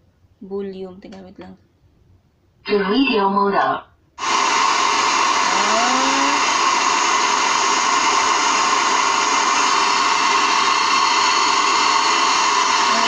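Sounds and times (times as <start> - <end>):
radio static hiss: 5.4 - 6.6.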